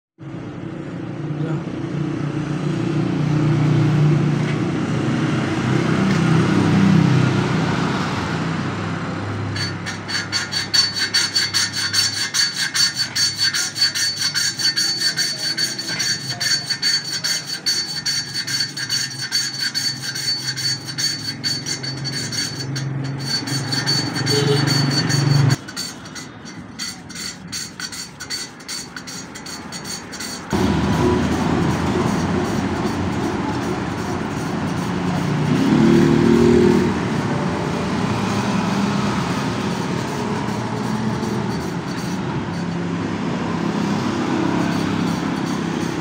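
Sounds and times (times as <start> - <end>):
valve lapping metal rubbing: 9.5 - 37.0, 39.3 - 46.0.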